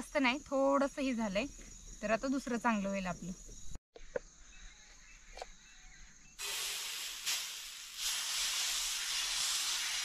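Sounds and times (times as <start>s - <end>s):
batter sizzling on hot griddle: 6.4s - 10.0s.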